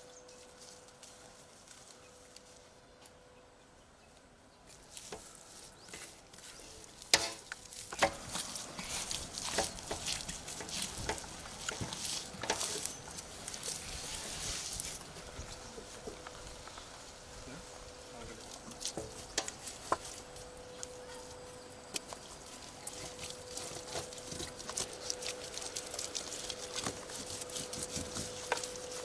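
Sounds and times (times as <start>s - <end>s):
hands squelching wet marinade into meat: 6.4s - 15.1s, 21.9s - 29.0s.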